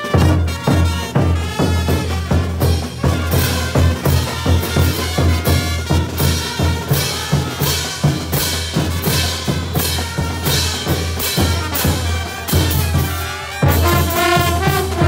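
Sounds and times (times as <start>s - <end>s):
bass drums and crash cymbals: 0.0s - 15.0s
brass band playing: 0.0s - 15.0s
low tuba and horn notes: 10.1s - 15.0s.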